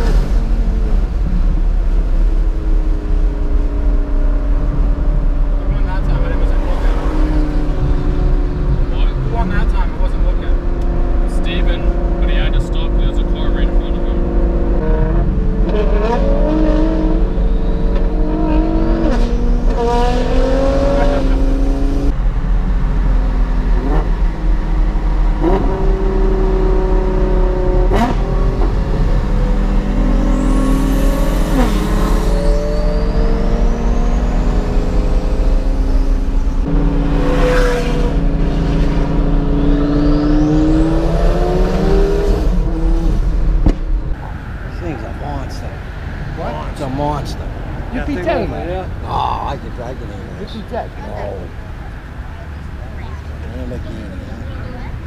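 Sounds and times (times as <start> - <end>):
car engine accelerating through gears: 0.0 - 22.2, 22.8 - 45.2.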